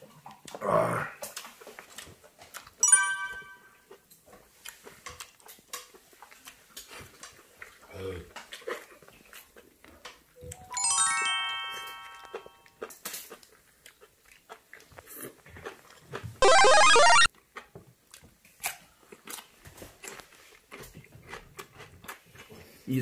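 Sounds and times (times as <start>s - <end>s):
descending bell-like chimes: 2.8s - 3.8s, 10.7s - 12.6s.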